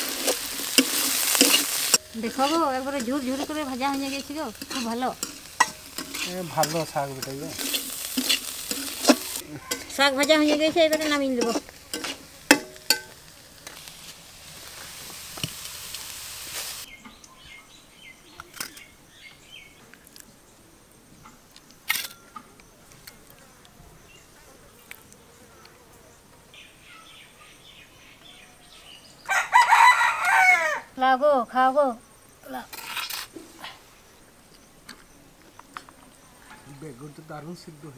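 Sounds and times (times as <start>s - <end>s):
chickens calling: 0.0s - 12.6s
oil sizzling in a wok: 0.0s - 17.0s
ladle clinking on steel bowls: 0.7s - 13.2s.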